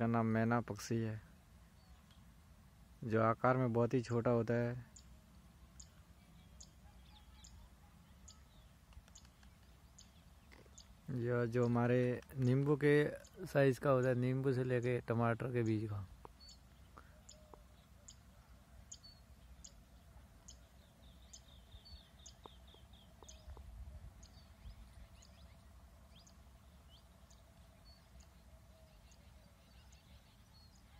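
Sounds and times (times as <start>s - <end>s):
bird chirps and trill: 4.9s - 11.8s, 16.3s - 30.9s.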